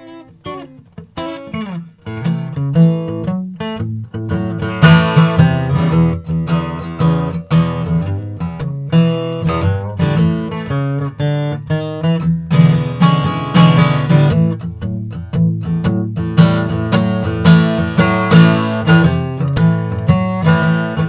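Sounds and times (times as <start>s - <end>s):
acoustic guitar strumming chords: 0.0s - 21.0s.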